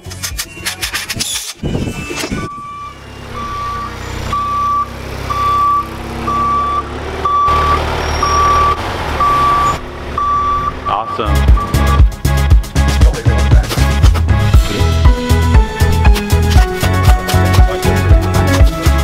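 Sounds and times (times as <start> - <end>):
backup alarm beeping: 1.7 - 12.1
diesel engine running: 1.8 - 19.0.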